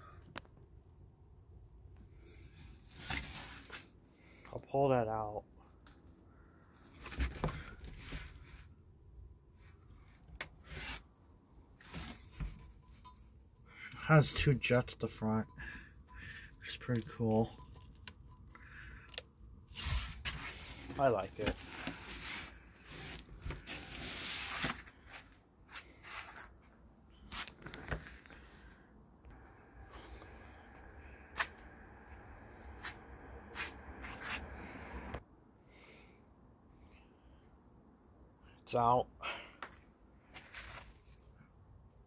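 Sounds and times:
rubbing and scraping on cardboard box: 19.7s - 24.8s.

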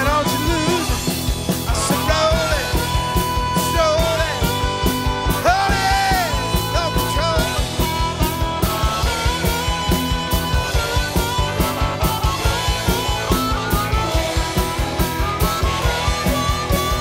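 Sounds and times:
harmonica lead: 0.0s - 17.0s
rock band playing live: 0.0s - 17.0s.

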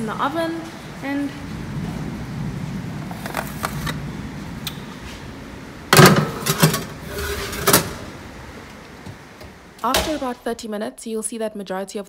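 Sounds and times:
tray knocking on oven rack: 5.9s - 6.9s
metal baking tray clattering: 5.9s - 8.1s.

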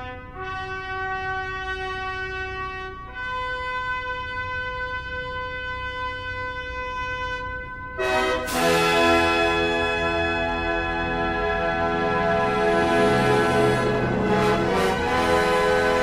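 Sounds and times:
slow brass fanfare: 0.0s - 16.0s
low sustained drone: 8.4s - 16.0s.

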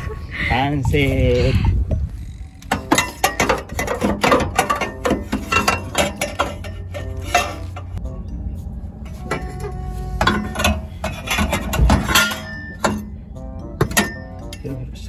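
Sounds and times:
metal pipe clinking against metal: 2.6s - 8.0s, 9.2s - 13.2s.

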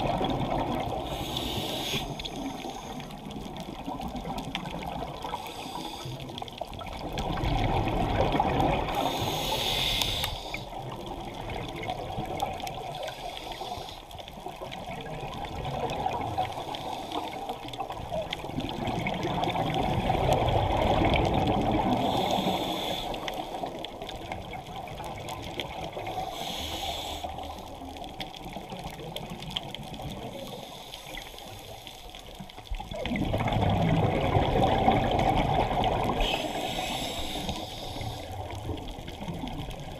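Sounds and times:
exhaled bubbles gurgling: 0.0s - 39.9s
regulator inhale hiss: 1.0s - 3.3s, 5.2s - 6.5s, 8.9s - 10.8s, 12.9s - 14.2s, 16.5s - 17.8s, 21.9s - 23.9s, 25.9s - 27.9s, 30.4s - 32.4s, 36.2s - 38.5s.

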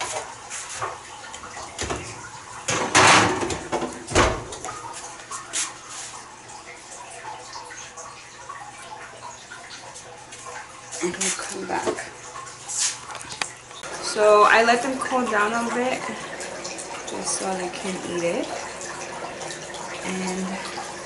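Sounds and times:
oven door shutting with a thump: 2.7s - 4.5s.

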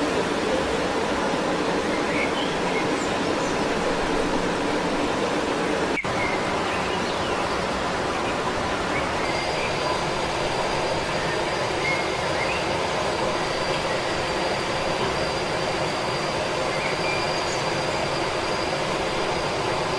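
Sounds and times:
steady rushing noise: 0.0s - 19.9s
thin high whine: 0.0s - 19.9s.

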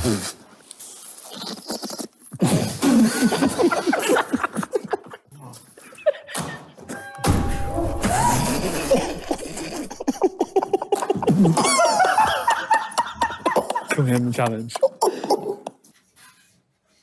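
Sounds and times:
men stifling laughter: 2.8s - 6.8s, 7.6s - 14.0s, 14.8s - 15.8s.

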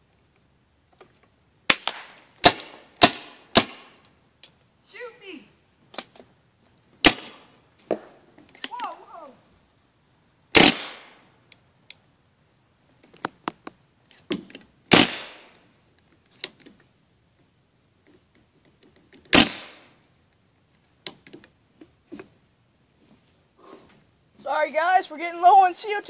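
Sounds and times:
paintball gun pop with hiss: 1.7s - 4.0s.

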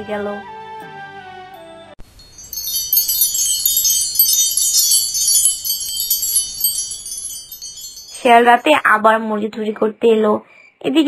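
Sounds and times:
wind chime shimmer: 2.0s - 9.0s.

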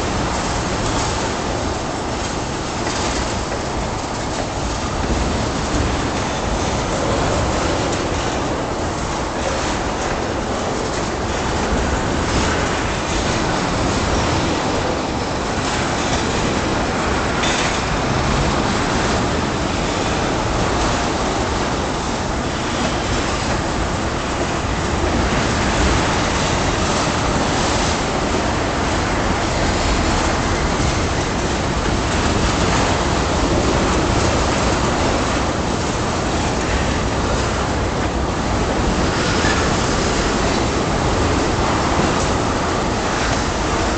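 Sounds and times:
train wheels rumbling on rails: 0.0s - 43.9s.

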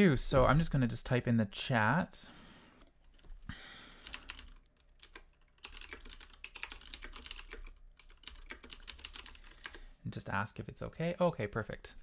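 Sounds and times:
keyboard typing clicks: 3.9s - 9.8s.

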